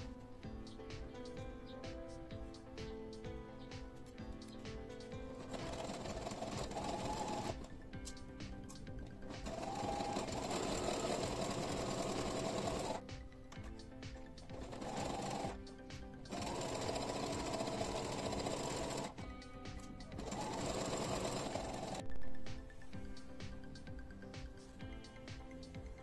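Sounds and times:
electric sewing machine stitching: 5.3s - 7.8s, 9.0s - 13.0s, 14.5s - 15.6s, 16.3s - 19.2s, 20.1s - 22.0s.

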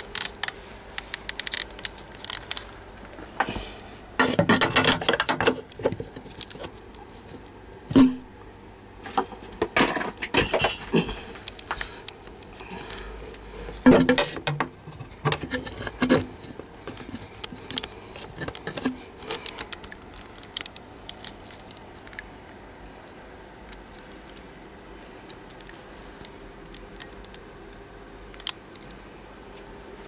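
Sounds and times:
taps and scrapes on plastic tubes: 4.2s - 8.2s, 13.3s - 22.3s.

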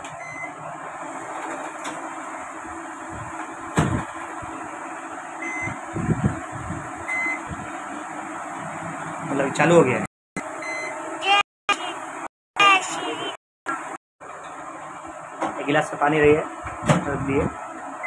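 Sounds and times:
microwave control panel beeping: 0.0s - 0.6s, 5.4s - 5.8s, 7.1s - 7.5s, 10.4s - 11.0s.

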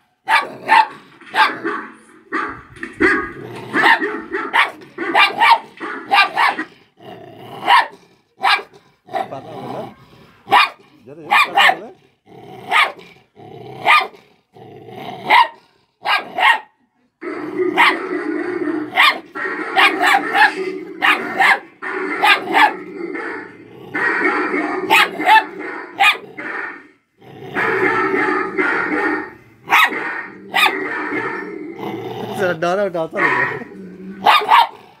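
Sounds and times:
puppy barking: 0.2s - 6.7s, 7.6s - 9.4s, 10.4s - 11.9s, 12.7s - 13.0s, 13.8s - 14.2s, 15.2s - 16.8s, 17.7s - 26.8s, 27.5s - 31.5s, 33.2s - 34.9s
puppy growling: 0.4s - 10.3s, 17.2s - 35.0s.

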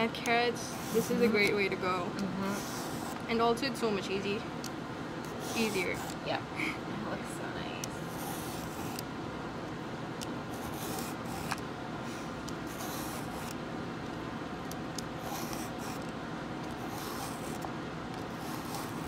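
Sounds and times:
steady background hum: 0.0s - 19.0s
peeler scraping a carrot: 18.3s - 19.0s.

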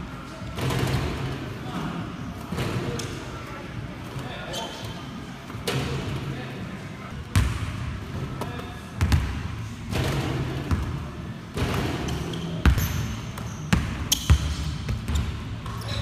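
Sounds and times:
short high shoe squeaks: 4.5s - 5.0s, 15.1s - 16.0s
basketballs bouncing on gym floor: 7.3s - 7.9s, 9.0s - 16.0s.

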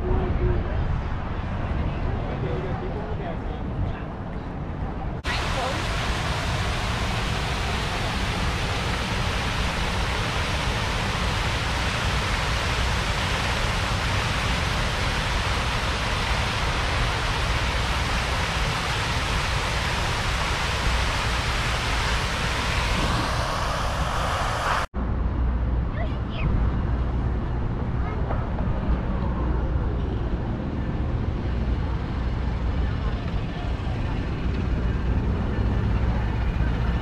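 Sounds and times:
fountain water jets splashing: 5.2s - 24.9s
low rumble: 21.2s - 37.0s.

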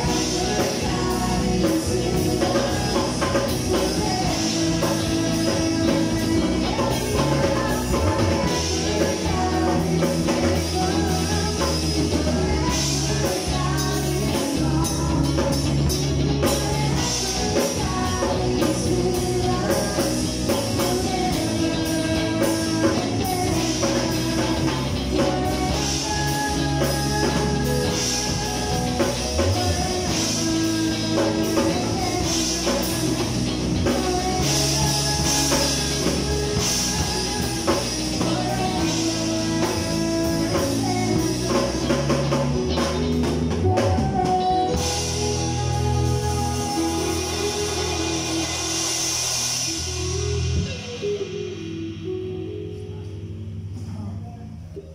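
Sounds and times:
drum kit with cymbals: 0.0s - 54.2s
electric guitars through amplifiers: 0.0s - 54.9s.

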